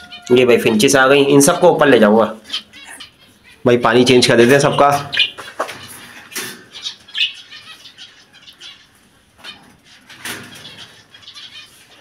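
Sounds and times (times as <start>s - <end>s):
birds fluttering wings in cage: 9.4s - 11.0s.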